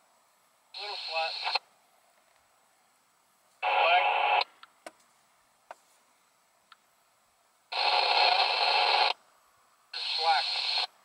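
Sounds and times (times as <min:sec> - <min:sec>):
radio static bursts: 0:00.8 - 0:01.6, 0:03.6 - 0:04.5, 0:07.7 - 0:09.2, 0:10.0 - 0:11.0.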